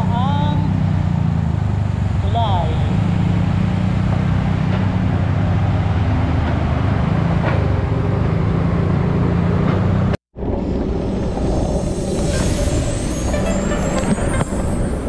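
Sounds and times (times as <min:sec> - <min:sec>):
road noise: 0:00.0 - 0:15.0
wind buffeting: 0:10.4 - 0:15.0.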